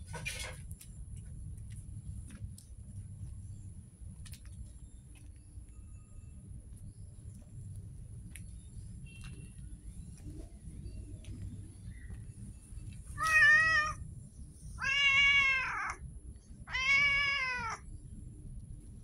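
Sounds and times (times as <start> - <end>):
cat meowing: 13.2 - 14.0, 14.8 - 16.0, 16.7 - 17.8.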